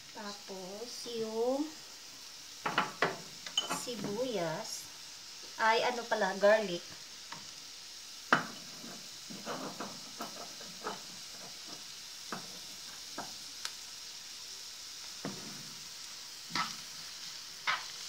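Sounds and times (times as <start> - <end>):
onion sizzling in oil: 0.0 - 18.0.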